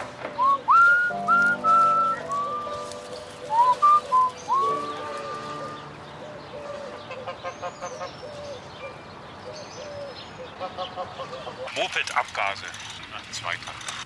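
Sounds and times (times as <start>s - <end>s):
low repeated bird call: 0.0s - 11.8s
person whistling a tune: 0.4s - 2.8s, 3.5s - 4.8s
soft musical accompaniment: 0.4s - 7.2s
high bird chirps: 0.4s - 10.0s.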